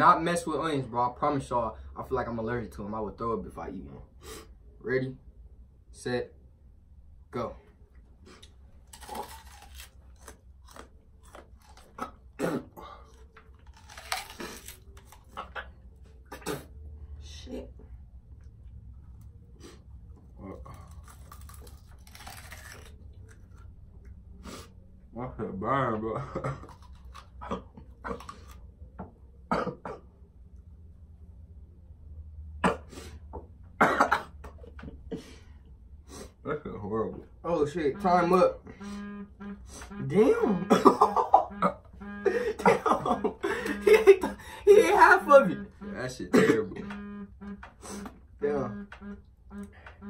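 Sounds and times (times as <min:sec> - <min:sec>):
crunching raw onion: 0:08.4 - 0:15.7, 0:20.4 - 0:23.7, 0:26.6 - 0:28.6
people coughing: 0:12.4 - 0:12.8, 0:29.5 - 0:30.0, 0:33.8 - 0:34.4, 0:40.4 - 0:41.7, 0:42.3 - 0:44.4, 0:46.3 - 0:46.9.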